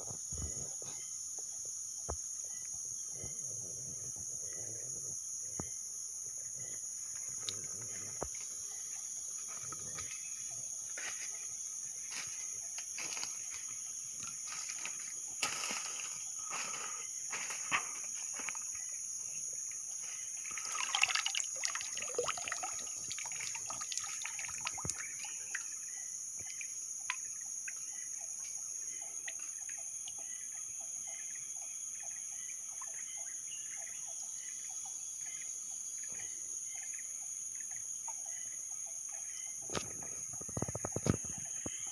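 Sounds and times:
high-pitched insect drone: 0.0s - 34.5s
water splashing in stream: 20.5s - 25.6s.

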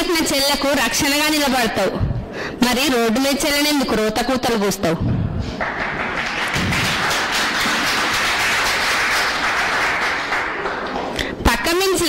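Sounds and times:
audience clapping: 5.6s - 11.4s.

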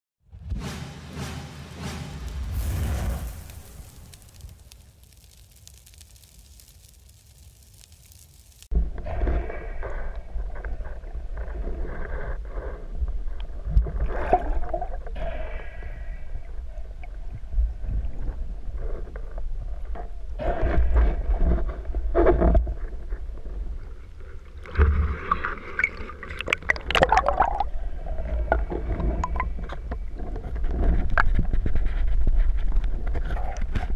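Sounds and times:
knocks and scrapes: 0.4s - 15.2s, 18.2s - 25.2s, 28.2s - 33.9s
muffled underwater rumble and gurgling: 8.8s - 25.8s, 26.9s - 33.9s.

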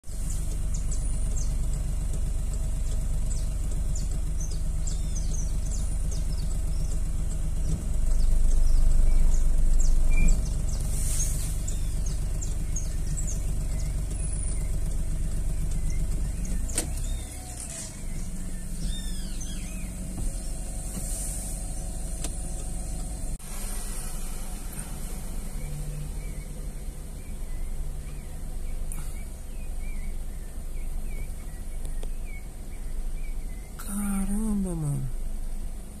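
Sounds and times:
pulsing low mechanical hum: 0.1s - 36.0s
high bird chirps: 3.2s - 7.0s, 7.6s - 20.8s.

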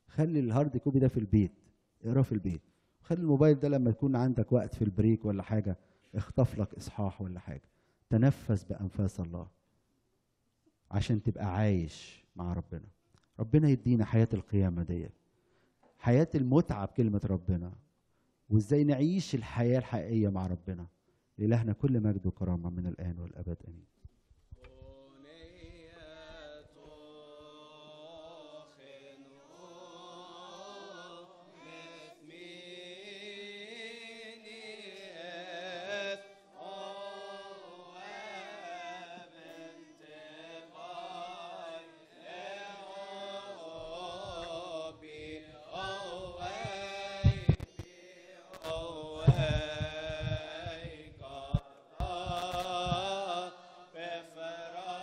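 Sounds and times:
voices singing a slow hymn: 24.6s - 55.0s
low thumps: 46.2s - 47.7s, 48.7s - 53.0s.

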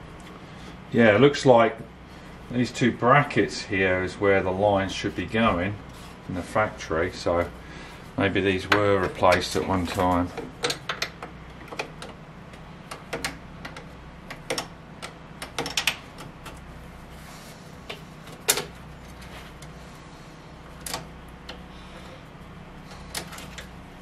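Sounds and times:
steady low hum: 0.0s - 24.0s
clicks and metal knocks: 8.6s - 16.6s.

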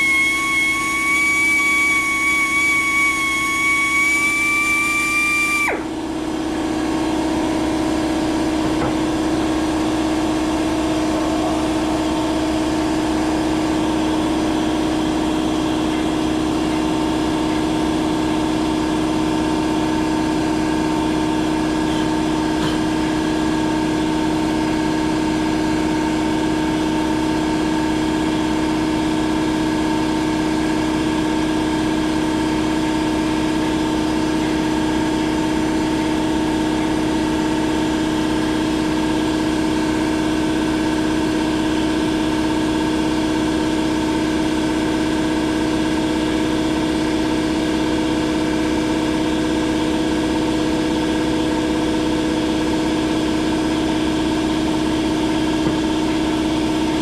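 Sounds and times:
high-pitched squeal: 0.0s - 6.0s
power drill humming: 0.0s - 6.2s.

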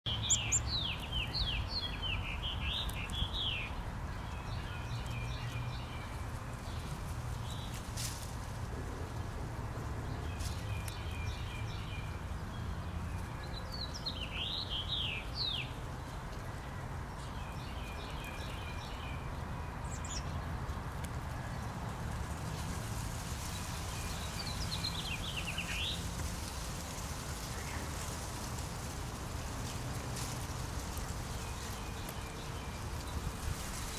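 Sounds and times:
chickadee calls: 0.1s - 3.8s.

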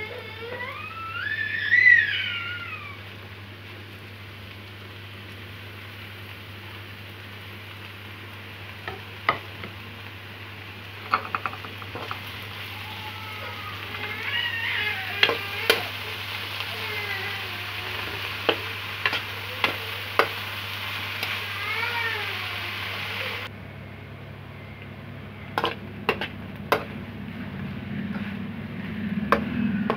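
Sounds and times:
cat meowing: 0.0s - 3.0s, 12.6s - 20.4s, 21.2s - 23.5s
vegetables sizzling in a pan: 0.0s - 23.5s, 25.6s - 27.0s.

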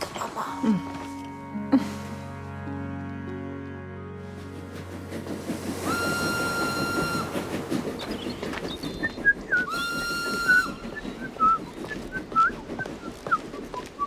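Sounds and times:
steam locomotive whistle blasts: 5.8s - 7.8s, 9.7s - 11.0s
birds chirping: 6.1s - 14.0s.

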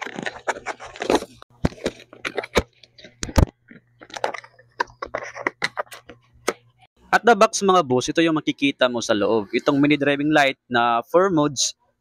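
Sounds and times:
cardboard crackling and scraping: 0.0s - 3.2s.

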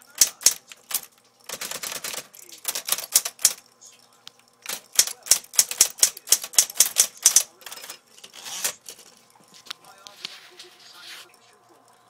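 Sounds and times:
typewriter key strikes: 0.0s - 3.6s, 4.6s - 8.8s.

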